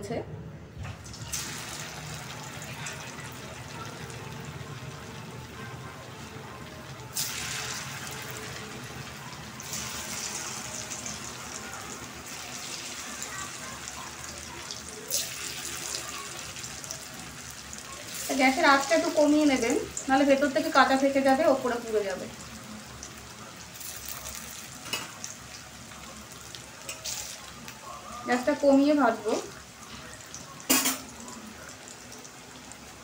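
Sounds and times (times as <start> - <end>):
deep-frying sizzle in oil: 1.0 - 33.0.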